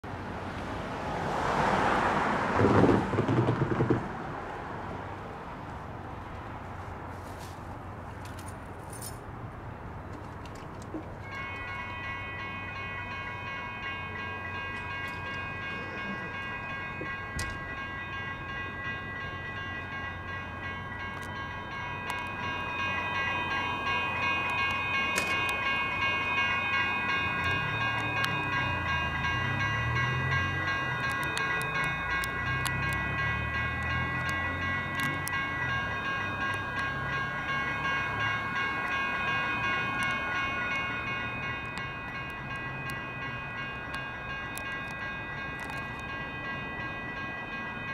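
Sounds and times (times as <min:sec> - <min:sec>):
light rail train rumble: 0:00.0 - 0:47.9
electronic crossing bells ringing: 0:11.2 - 0:47.9.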